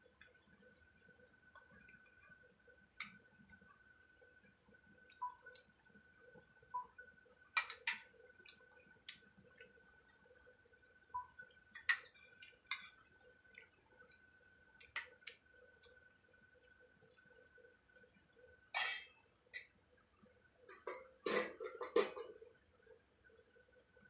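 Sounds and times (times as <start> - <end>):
faint steady high whine: 0.0 - 24.0
kitchen utensils and dishes clinking: 18.8 - 19.7, 20.7 - 22.4.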